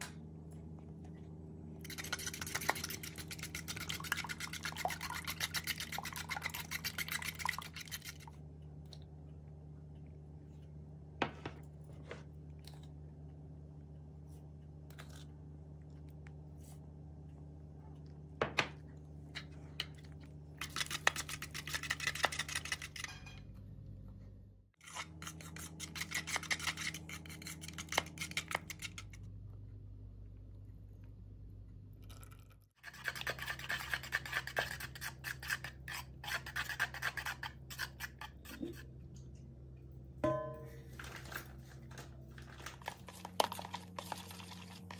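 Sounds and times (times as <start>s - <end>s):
steady low hum: 0.0s - 44.9s
fork whisking batter in plastic bowl: 1.8s - 8.5s, 20.5s - 23.2s, 24.8s - 29.2s, 32.8s - 39.0s, 42.4s - 44.9s.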